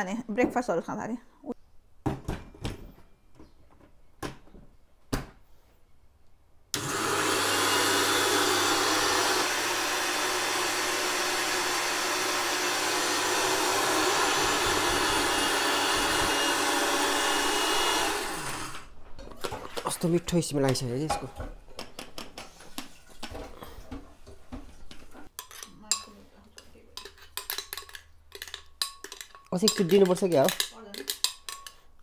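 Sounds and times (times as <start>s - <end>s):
electric mixer grinder grinding: 6.8s - 18.9s.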